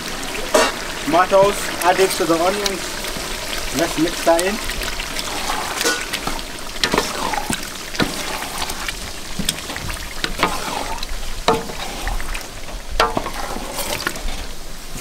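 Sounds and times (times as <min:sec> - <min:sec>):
onions sizzling in oil: 0:00.0 - 0:15.0
wooden spoon scraping a pot: 0:05.1 - 0:15.0.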